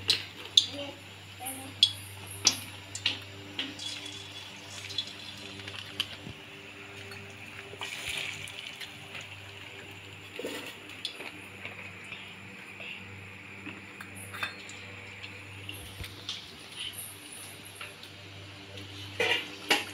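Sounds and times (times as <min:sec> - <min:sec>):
batter sizzling in hot oil: 0:01.8 - 0:11.3
oil crackling and popping: 0:01.8 - 0:11.9.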